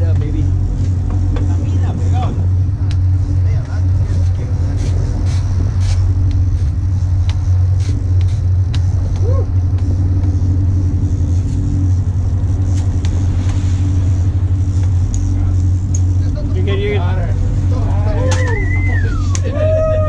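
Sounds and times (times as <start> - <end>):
boat engine droning: 0.0 - 20.0
water rushing along hull: 11.7 - 20.0.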